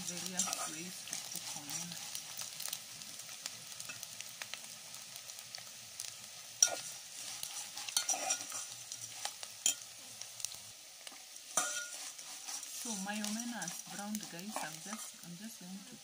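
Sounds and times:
metal spoon scraping a pot: 0.0 - 2.4, 6.6 - 9.9, 11.5 - 15.2
fish sizzling in oil: 0.0 - 16.0.

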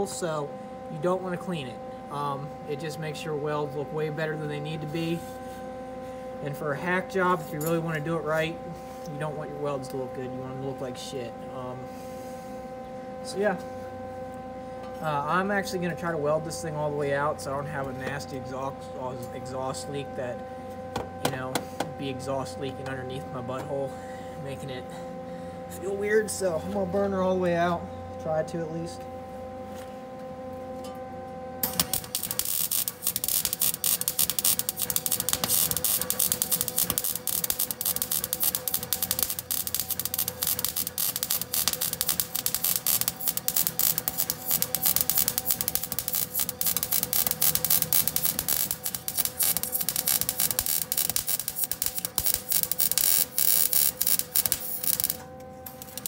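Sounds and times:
steady hum: 0.0 - 56.0
welding arc crackling: 31.6 - 56.0.

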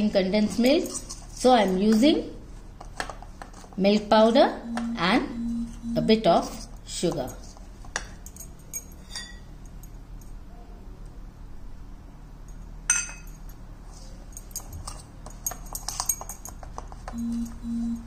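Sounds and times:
short low hum: 4.5 - 6.4, 17.1 - 18.0.

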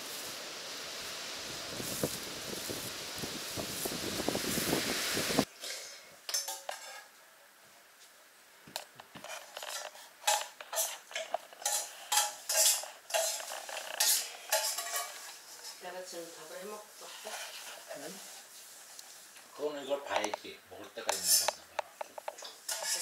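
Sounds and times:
metal pots and utensils clinking: 5.6 - 7.1, 9.2 - 15.9, 21.1 - 23.0.

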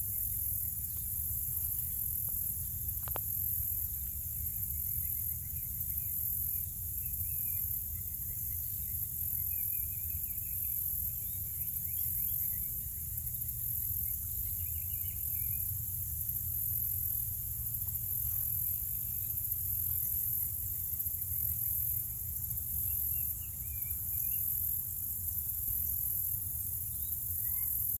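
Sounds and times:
low steady rumble: 0.0 - 27.4
insect chorus trilling: 0.0 - 28.0
bird singing: 4.6 - 16.1, 18.2 - 24.8, 26.8 - 28.0.

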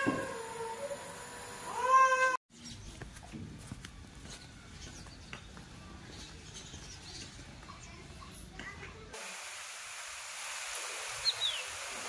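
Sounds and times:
cat meowing: 1.7 - 2.4.

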